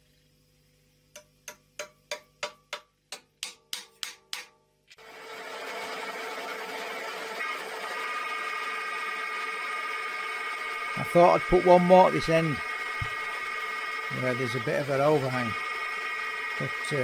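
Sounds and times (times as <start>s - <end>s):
small hammer tapping steel pins: 1.1s - 4.6s
milling machine spindle whining: 5.0s - 17.0s.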